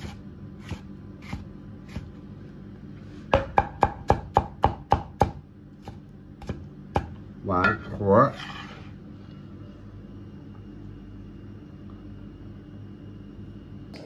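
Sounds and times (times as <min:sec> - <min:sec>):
cleaver slicing tomato: 0:00.0 - 0:02.1
cleaver chopping on wooden block: 0:03.4 - 0:07.1.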